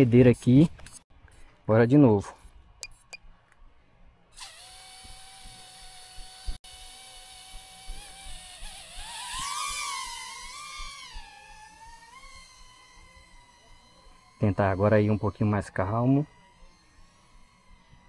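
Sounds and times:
drone motors whining: 4.4 - 18.0.

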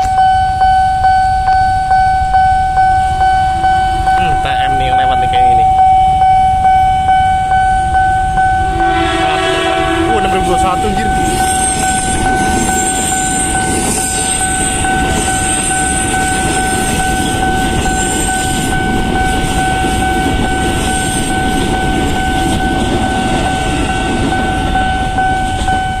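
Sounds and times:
crossing warning alarm tone: 0.0 - 26.0
train rumbling past: 0.0 - 26.0.

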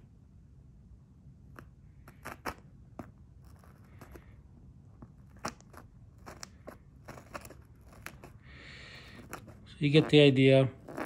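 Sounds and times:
craft knife cutting fabric: 1.6 - 4.3, 5.1 - 11.0.

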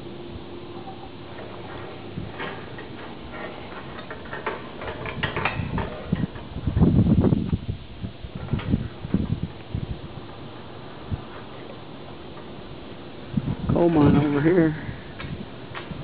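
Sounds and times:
choppy low rumble: 5.6 - 16.0.

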